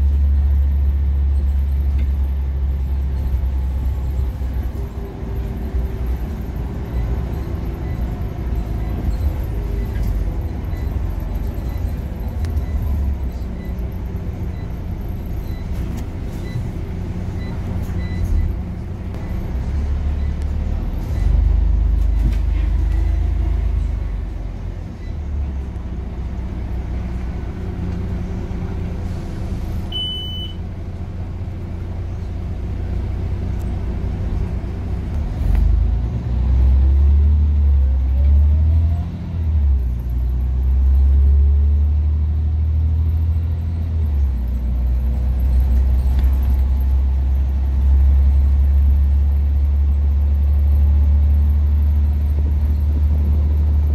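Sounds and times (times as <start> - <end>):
bus engine and road rumble: 0.0 - 53.9
short electronic beep: 29.9 - 30.6.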